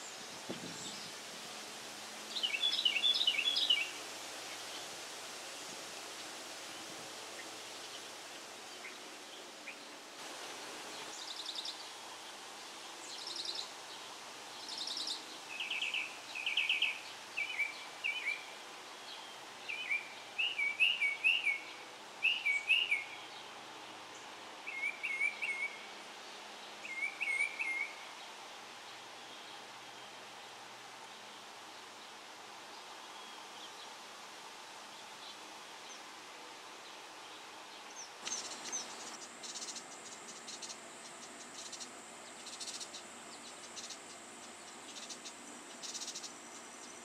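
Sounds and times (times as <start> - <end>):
outdoor background hiss: 0.0 - 47.0
wren singing: 2.3 - 4.0, 13.0 - 23.3, 37.8 - 47.0.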